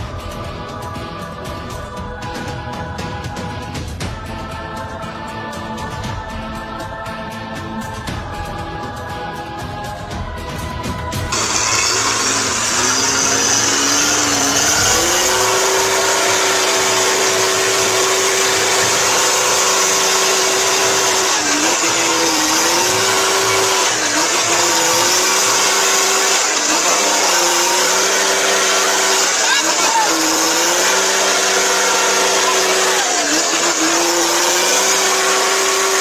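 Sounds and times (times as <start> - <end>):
truck engine revving: 11.2 - 36.0
wheels spinning in mud: 11.3 - 36.0.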